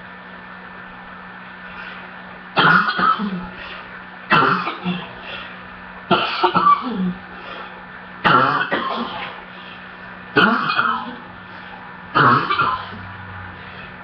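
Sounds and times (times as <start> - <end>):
person coughing harshly: 2.6 - 3.6, 4.3 - 5.2, 6.1 - 7.2, 8.2 - 9.4, 10.4 - 11.2, 12.1 - 13.0.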